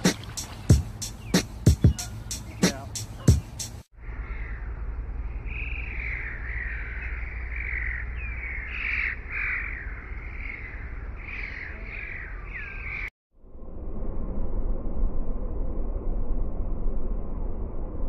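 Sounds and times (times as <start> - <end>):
low rumble: 4.0 - 18.0
goslings peeping: 5.5 - 13.1.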